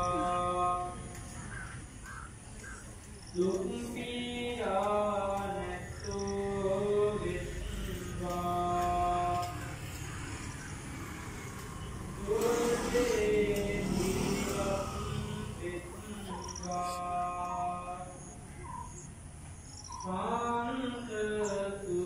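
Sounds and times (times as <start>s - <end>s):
crows cawing: 1.2s - 3.0s, 9.3s - 11.9s
person chanting long notes: 3.4s - 18.1s.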